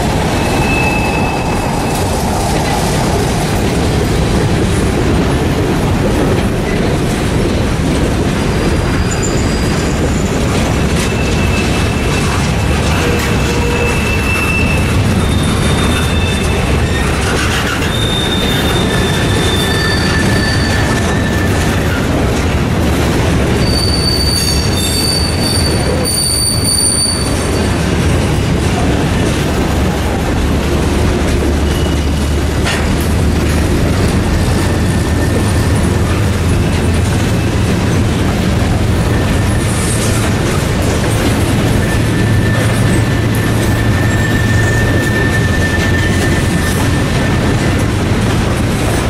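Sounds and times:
train wheels rumbling on rail: 0:00.0 - 0:49.0
high-pitched wheel squeals: 0:00.1 - 0:02.8, 0:08.8 - 0:22.3, 0:23.5 - 0:28.0, 0:31.2 - 0:37.6, 0:38.8 - 0:47.9.

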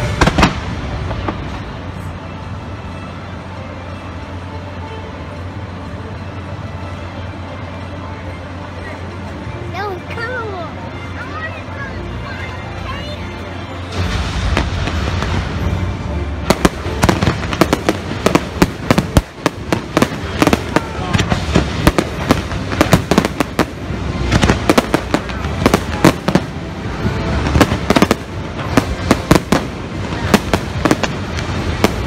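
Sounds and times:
loud firework burst: 0:00.0 - 0:02.1, 0:13.9 - 0:32.0
fireworks bangs and crackles: 0:00.0 - 0:04.5, 0:12.8 - 0:32.0
low rumble: 0:13.7 - 0:32.0.

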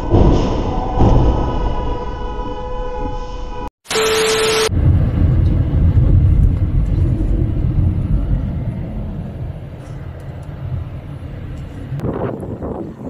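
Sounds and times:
car engine and tyre rumble: 0:04.7 - 0:13.0.

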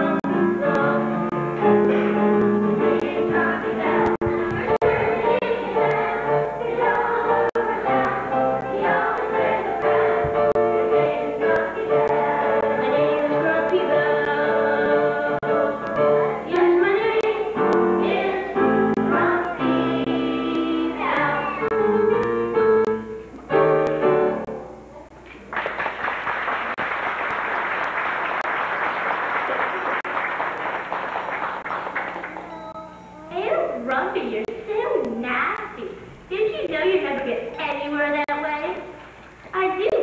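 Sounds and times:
children's choir singing: 0:00.0 - 0:22.5
audience applause: 0:25.4 - 0:32.6.

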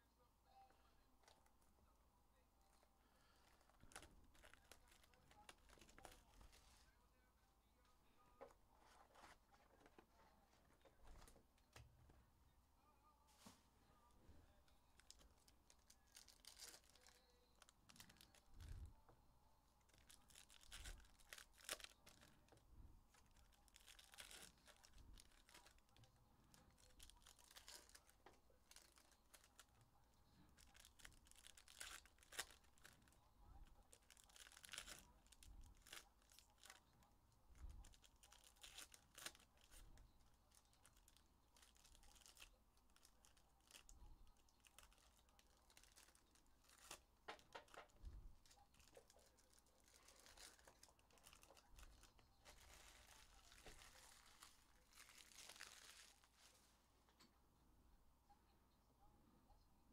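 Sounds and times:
foil wrappers tearing and crinkling: 0:14.9 - 0:18.5, 0:19.9 - 0:29.7, 0:30.5 - 0:33.2, 0:33.9 - 0:36.8, 0:37.8 - 0:39.8, 0:40.5 - 0:56.7.

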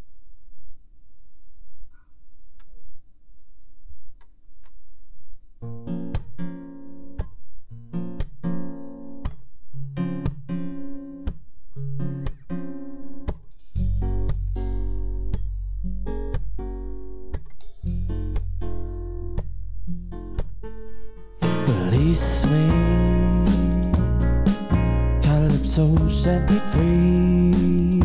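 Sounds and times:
acoustic guitar strumming chords: 0:05.6 - 0:28.0
low steady hum: 0:13.8 - 0:28.0.

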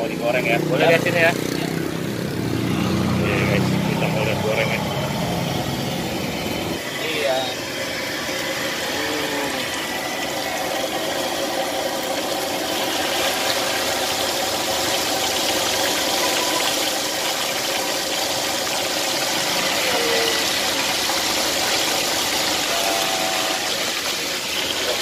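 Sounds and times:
batter sizzling in hot oil: 0:02.2 - 0:25.0.

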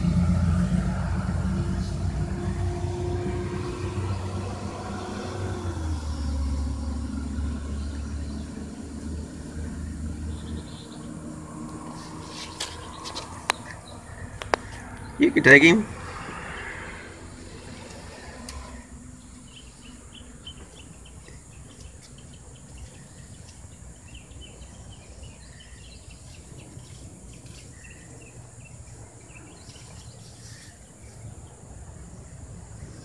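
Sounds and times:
low rumble: 0:00.0 - 0:21.2.

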